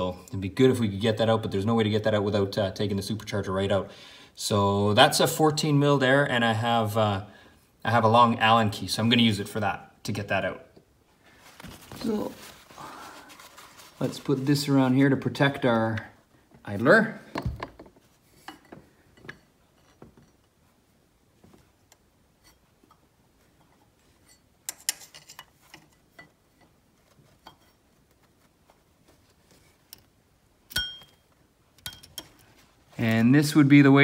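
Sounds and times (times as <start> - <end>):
wrench clinking on metal: 30.7 - 31.2, 31.8 - 32.5.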